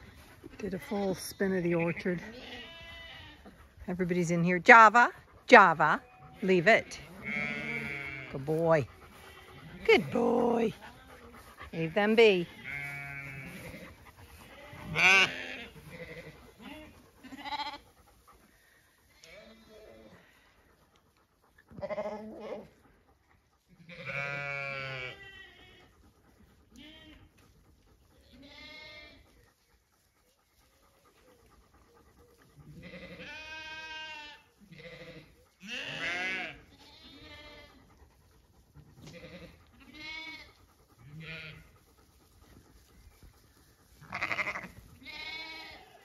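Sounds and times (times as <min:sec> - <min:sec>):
sheep bleating: 0:01.9 - 0:03.5, 0:05.8 - 0:11.2, 0:12.1 - 0:17.9, 0:23.8 - 0:25.8, 0:28.3 - 0:29.2, 0:32.8 - 0:37.9, 0:39.0 - 0:41.7, 0:44.0 - 0:46.0.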